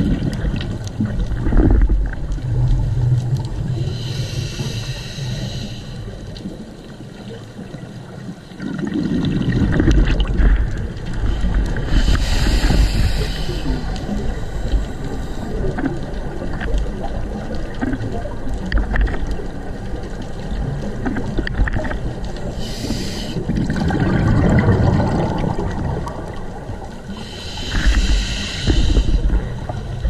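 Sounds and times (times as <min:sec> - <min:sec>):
underwater rumble of moving water: 0:00.0 - 0:30.0
diver exhaling bubbles: 0:08.6 - 0:10.7, 0:22.6 - 0:29.7.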